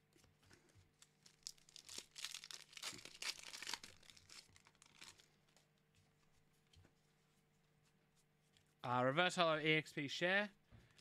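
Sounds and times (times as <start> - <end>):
foil wrapper tearing and crinkling: 1.0 - 5.3.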